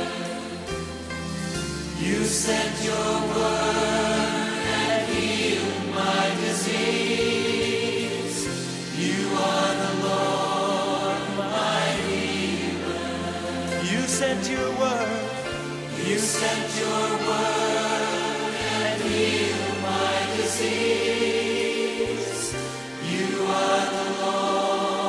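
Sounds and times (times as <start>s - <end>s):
choir singing held chords: 0.0s - 25.0s
instrumental backing music: 0.0s - 25.0s.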